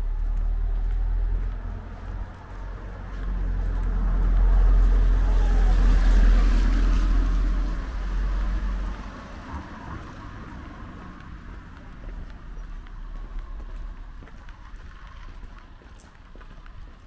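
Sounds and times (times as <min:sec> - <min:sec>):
motor vehicle driving past: 0:00.0 - 0:15.4.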